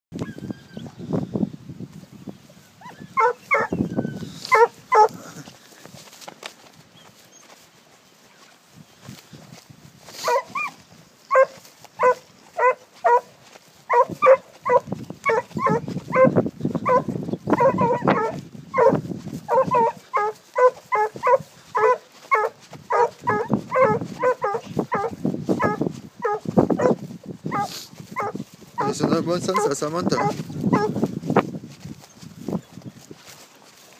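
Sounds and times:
hounds baying: 0:02.8 - 0:05.6, 0:10.1 - 0:31.1.

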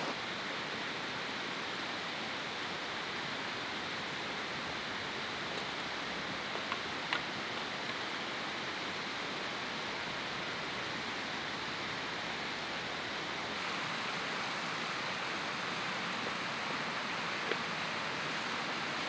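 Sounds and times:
running water rushing: 0:00.0 - 0:19.0.

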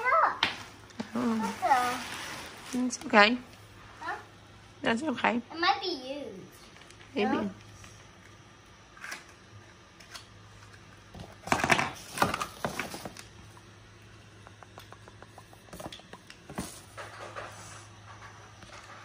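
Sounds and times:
low room hum: 0:00.0 - 0:19.0
plastic bags rustling: 0:00.6 - 0:03.4, 0:11.4 - 0:13.5.

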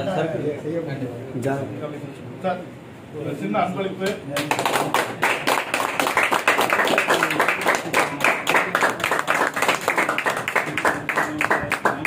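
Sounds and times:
people applauding: 0:04.4 - 0:12.0.

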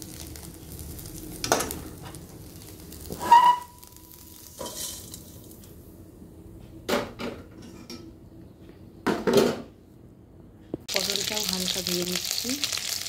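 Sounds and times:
metal spatula scraping pan: 0:04.5 - 0:05.4.

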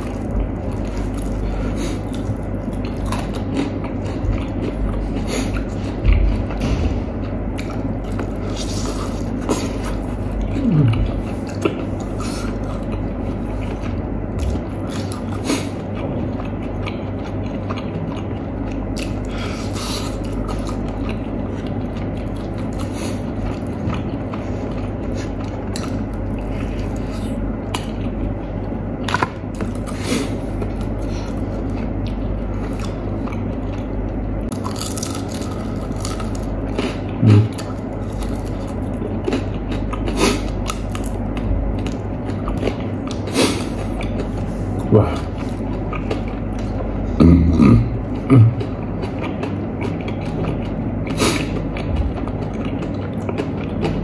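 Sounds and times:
chewing crispy fried chicken: 0:00.0 - 0:54.0
steady low hum: 0:00.0 - 0:54.0
crackles of tearing chicken skin: 0:34.5 - 0:39.0.

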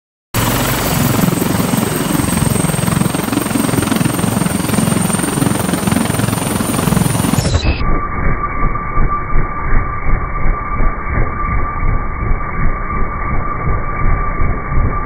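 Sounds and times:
helicopter rotor chop: 0:00.4 - 0:07.8
high turbine whine: 0:00.4 - 0:15.0.

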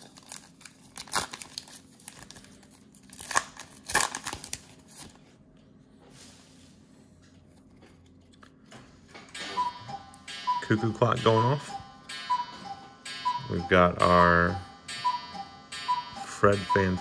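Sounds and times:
plastic wrapper tearing and crinkling: 0:00.0 - 0:05.2.

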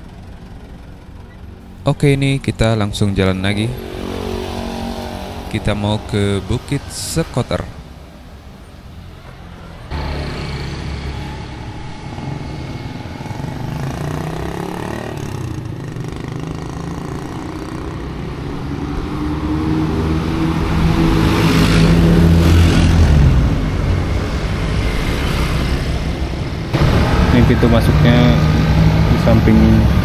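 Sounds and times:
vehicle engine running: 0:00.0 - 0:08.4, 0:21.7 - 0:30.0.

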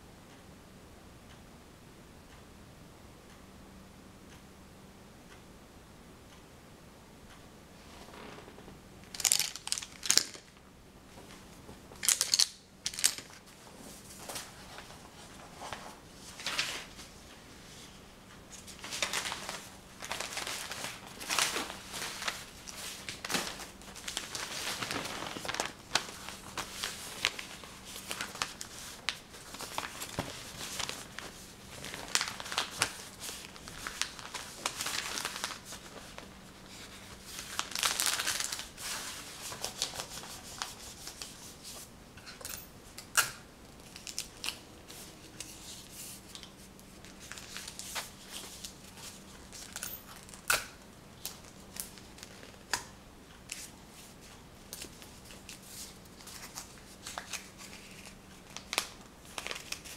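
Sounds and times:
crinkling and rustling: 0:07.8 - 0:17.2, 0:18.5 - 0:42.7, 0:43.7 - 0:59.9.

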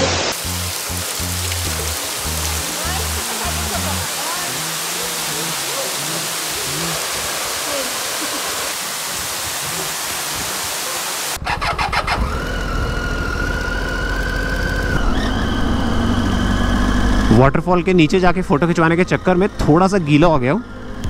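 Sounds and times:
waterfall rushing: 0:00.0 - 0:12.4
motorcycle engine rumbling: 0:00.0 - 0:21.0.

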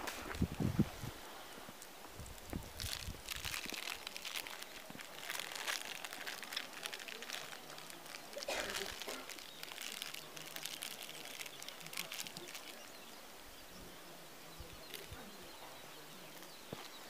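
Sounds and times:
rustling and crackling: 0:00.0 - 0:13.0, 0:14.7 - 0:17.0
faint outdoor ambience: 0:00.0 - 0:17.0.

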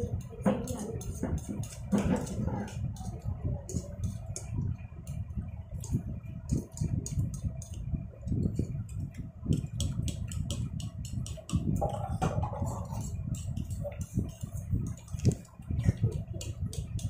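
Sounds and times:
forks against plates: 0:00.3 - 0:04.5.

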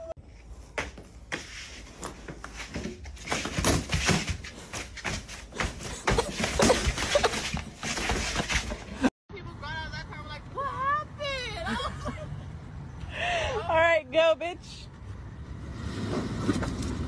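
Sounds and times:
cardboard box rustling and bumping: 0:02.7 - 0:08.9.

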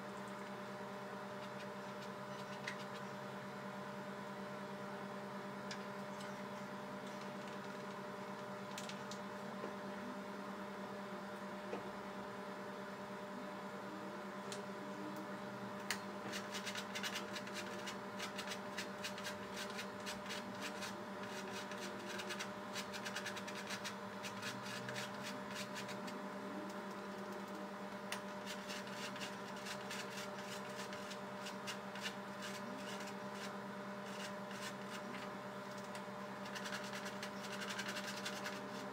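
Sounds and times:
electrical hum: 0:00.0 - 0:38.9.

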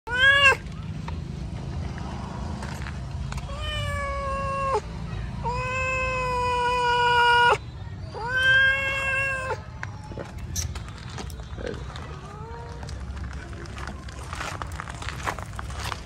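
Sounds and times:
cat meowing: 0:00.1 - 0:00.6, 0:03.4 - 0:04.8, 0:05.4 - 0:09.6.

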